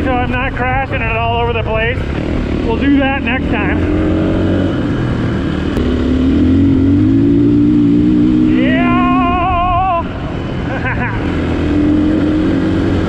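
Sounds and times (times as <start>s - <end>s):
dirt bike engine running: 0.0s - 13.0s.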